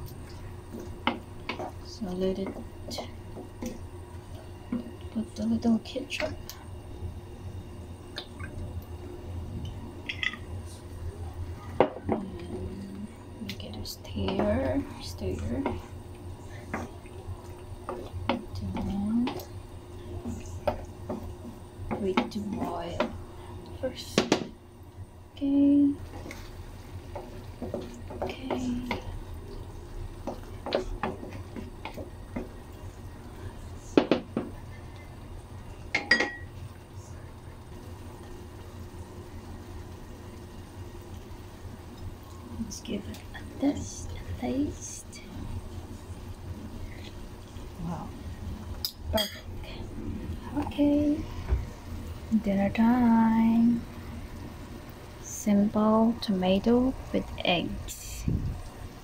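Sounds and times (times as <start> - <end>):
wooden spatula stirring in pan: 0.0 - 6.6, 10.2 - 24.6, 25.4 - 36.7
steady low hum: 0.0 - 59.0.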